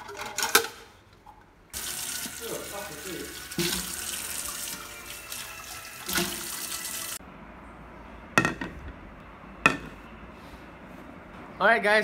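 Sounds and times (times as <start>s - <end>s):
tap water running into sink: 1.8s - 7.2s.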